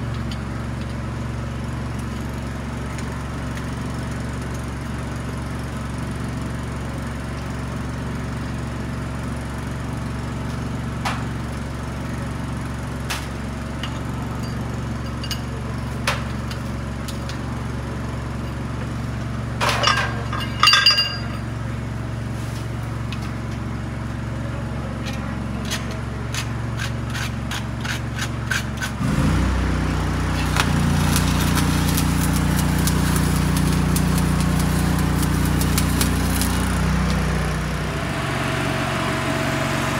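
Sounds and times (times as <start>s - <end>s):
engine humming: 9.5s - 26.0s, 29.0s - 39.9s
metal clinks and taps: 13.8s - 15.6s, 19.8s - 21.5s
arc welding crackle: 28.6s - 38.2s.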